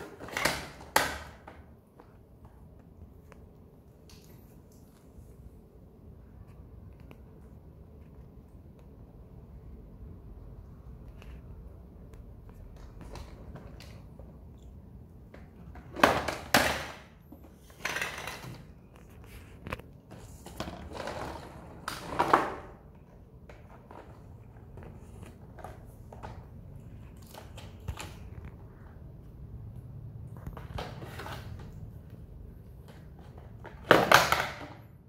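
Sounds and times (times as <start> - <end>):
toy truck rolling on tile floor: 15.4 - 22.9
small clicks and handling noises: 17.3 - 20.7.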